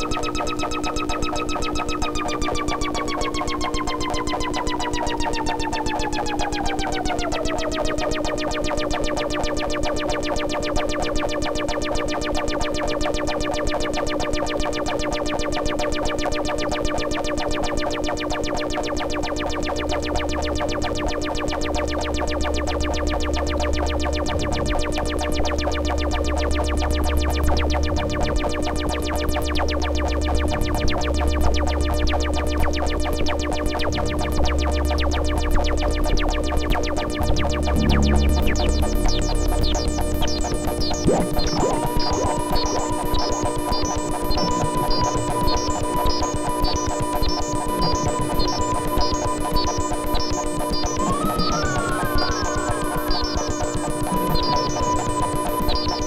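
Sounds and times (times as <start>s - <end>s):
deep bass drone: 22.8s - 32.9s, 33.8s - 42.8s
droning instrumental music: 23.0s - 29.4s, 35.2s - 44.0s.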